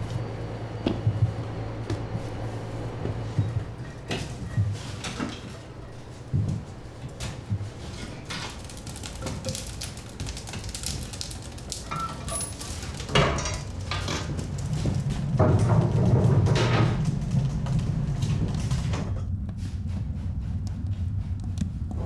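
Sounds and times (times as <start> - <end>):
firewood knocking and clattering: 2.9 - 19.2.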